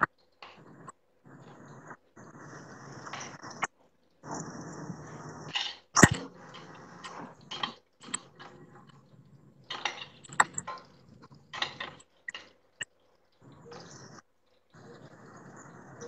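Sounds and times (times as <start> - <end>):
kitchen utensils clinking and scraping: 9.7 - 12.6.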